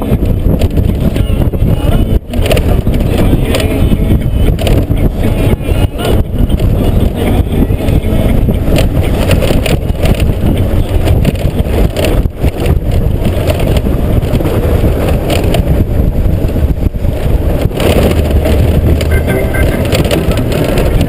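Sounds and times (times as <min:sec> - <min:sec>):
motorcycle engine running: 0:00.0 - 0:21.0
wind buffeting microphone: 0:00.0 - 0:21.0
tyres on loose stones: 0:17.6 - 0:21.0.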